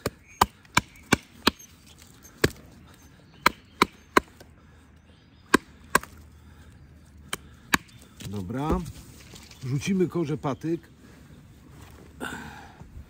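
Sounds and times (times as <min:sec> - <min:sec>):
knife chopping wood: 0:00.0 - 0:01.7, 0:03.4 - 0:04.4, 0:05.5 - 0:06.2, 0:07.3 - 0:08.9.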